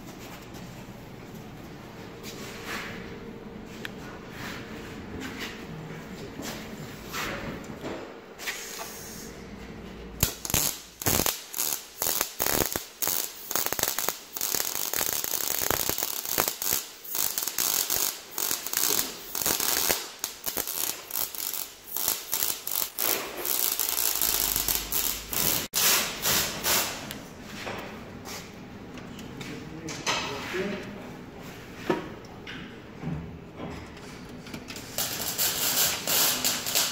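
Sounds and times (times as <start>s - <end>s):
welder arc crackling: 10.2s - 25.8s, 35.0s - 36.9s.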